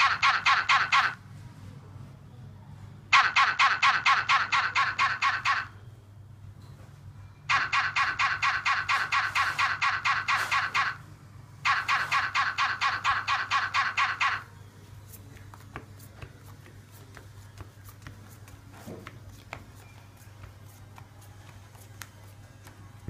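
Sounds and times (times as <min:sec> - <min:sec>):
loud rapid pulsing trill: 0:03.1 - 0:05.8, 0:07.5 - 0:11.0, 0:11.6 - 0:14.5.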